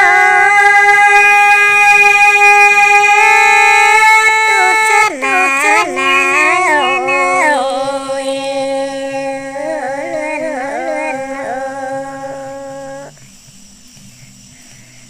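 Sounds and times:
women singing a folk duet: 4.2s - 13.1s.

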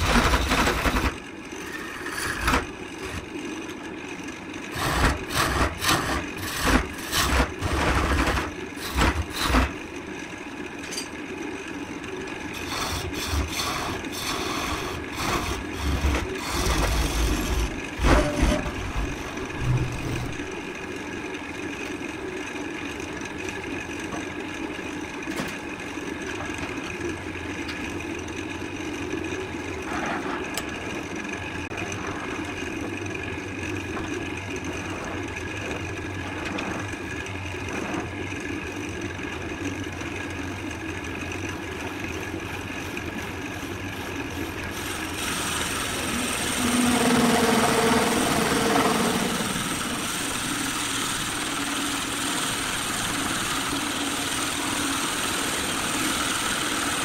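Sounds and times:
wood lathe motor humming: 0.0s - 10.6s, 11.6s - 21.0s, 41.0s - 57.0s
turning tool scraping wood: 4.7s - 9.7s, 12.6s - 20.5s.

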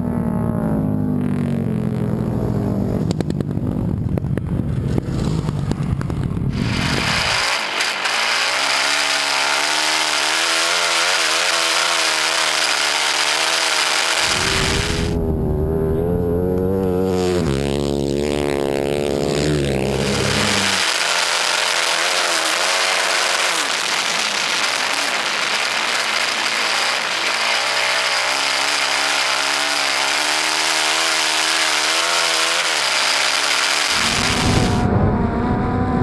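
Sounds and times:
motorcycle engine revving: 0.0s - 36.0s
wind rush: 34.0s - 36.0s.

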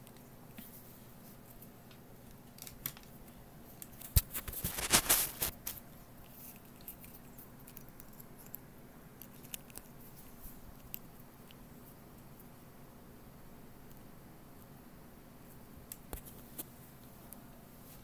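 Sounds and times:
cables scraping and rubbing: 3.8s - 8.6s.

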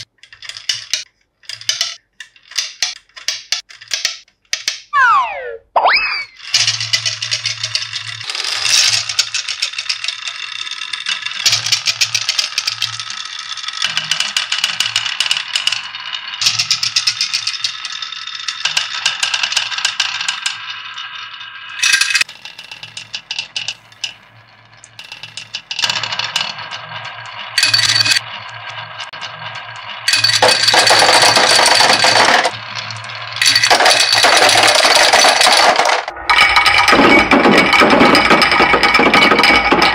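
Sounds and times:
marbles rattling down wooden tracks: 6.4s - 39.9s.

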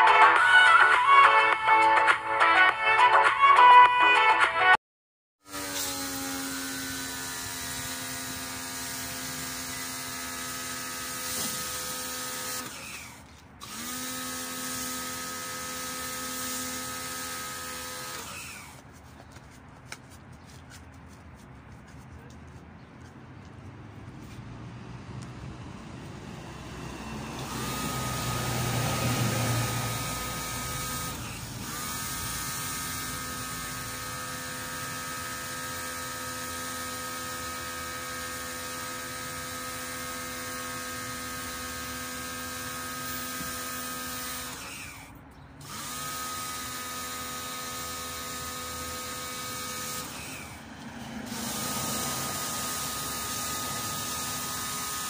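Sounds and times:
pressure washer motor whine: 5.5s - 18.8s, 26.2s - 55.0s.

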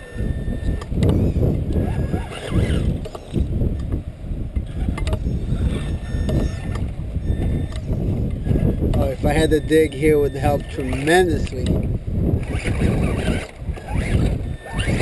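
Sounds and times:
toy car motor whine: 0.0s - 3.9s, 4.6s - 15.0s
wind buffeting microphone: 0.0s - 15.0s
drivetrain clicks: 0.6s - 15.0s.

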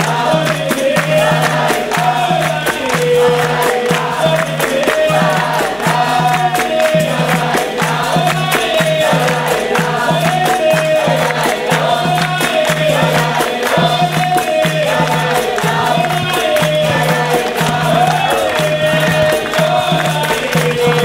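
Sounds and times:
berimbaus and drums playing: 0.0s - 21.0s
group singing: 0.0s - 21.0s
hand clapping: 0.0s - 21.0s.

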